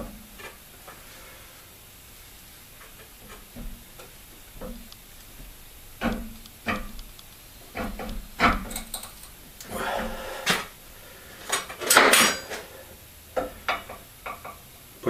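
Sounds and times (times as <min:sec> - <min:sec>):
steel parts knocking and clinking: 0:07.7 - 0:09.4.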